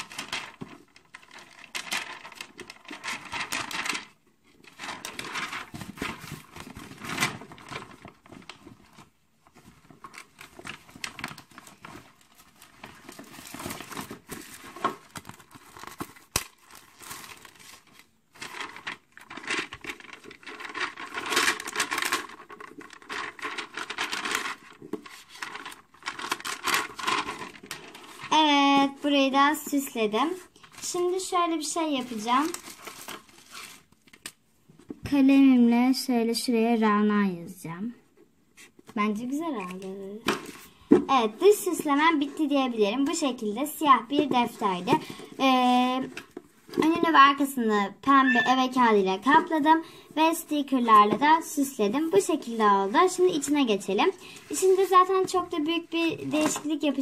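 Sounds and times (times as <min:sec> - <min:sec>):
plastic packet crinkling: 0:00.0 - 0:29.0, 0:30.6 - 0:34.4.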